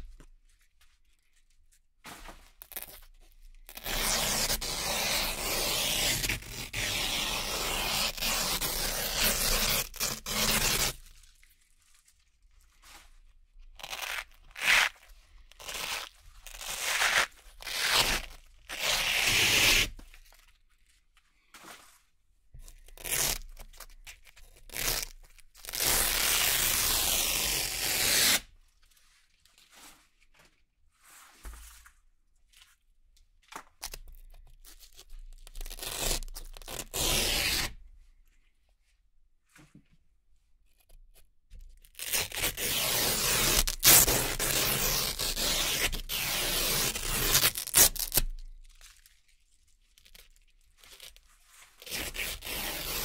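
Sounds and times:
velcro ripping apart: 2.6 - 12.0, 13.8 - 20.4, 22.7 - 28.5, 33.8 - 37.8, 41.8 - 53.0.

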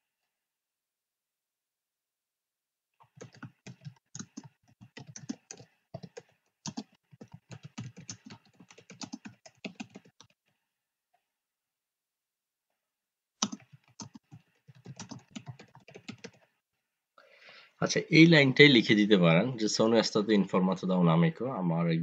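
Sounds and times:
typing on a keyboard: 3.0 - 10.4, 13.4 - 16.5.

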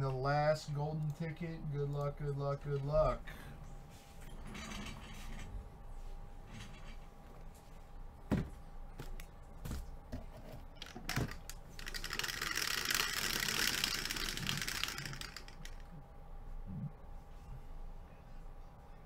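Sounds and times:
dice rattling in plastic dome: 10.8 - 15.8.

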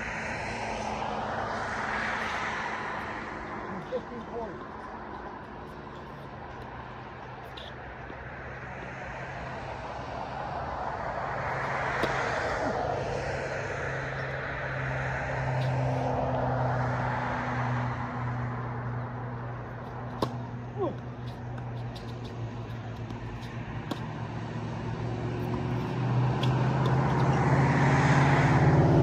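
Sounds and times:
passing engine drone: 23.2 - 29.0.

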